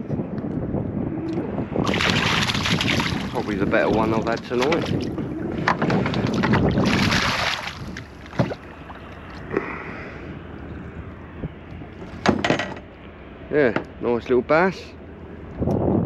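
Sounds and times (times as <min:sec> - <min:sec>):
fish splashing at water surface: 0:01.8 - 0:05.2, 0:05.8 - 0:09.6.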